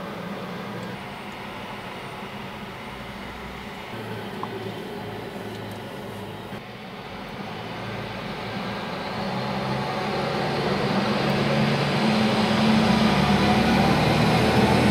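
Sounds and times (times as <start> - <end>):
fire truck diesel engine: 0.0 - 14.9.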